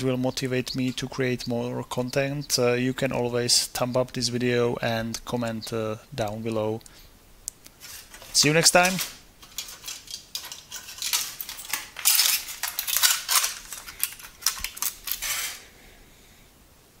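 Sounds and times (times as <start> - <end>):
circuit boards clattering: 7.8 - 15.6.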